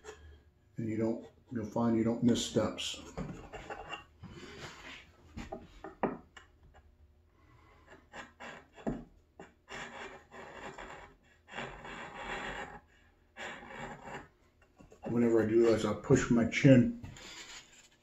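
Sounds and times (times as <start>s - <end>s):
chisel scraping wood: 0.0s - 0.4s, 3.0s - 6.9s, 7.6s - 16.3s.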